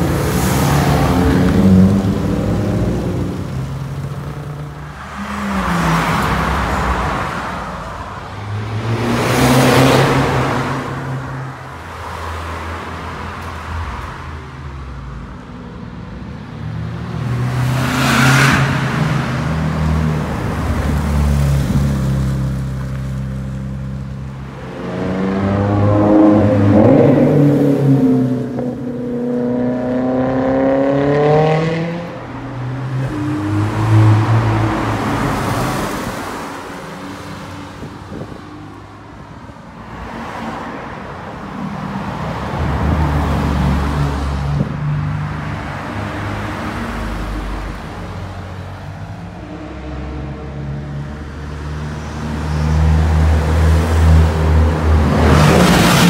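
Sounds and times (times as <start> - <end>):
sports cars accelerating past: 16.7 - 23.0, 24.5 - 38.2.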